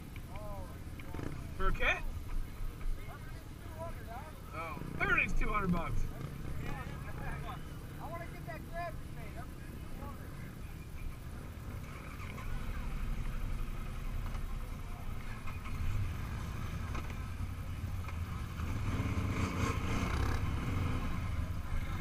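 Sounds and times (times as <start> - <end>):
engines idling: 0.0 - 22.0.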